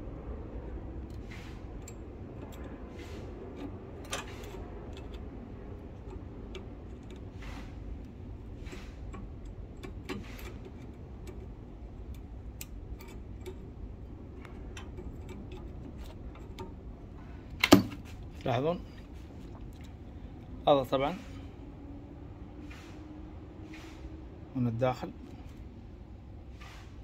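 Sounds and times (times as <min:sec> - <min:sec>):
steady low background noise: 0:00.0 - 0:26.5
metallic clicks of blade on pipe: 0:01.1 - 0:08.1, 0:08.7 - 0:13.8, 0:14.4 - 0:16.8
blade scraping metal: 0:01.1 - 0:11.3.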